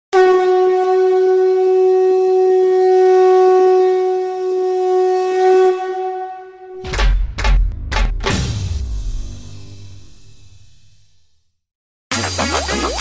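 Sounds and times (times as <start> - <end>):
wind instrument long note: 0.1 - 6.8.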